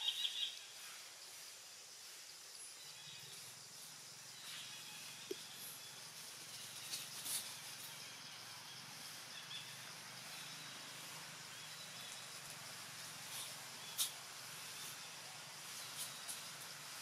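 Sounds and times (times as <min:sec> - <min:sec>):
faint bird chirps: 0:00.0 - 0:01.0, 0:02.6 - 0:12.6.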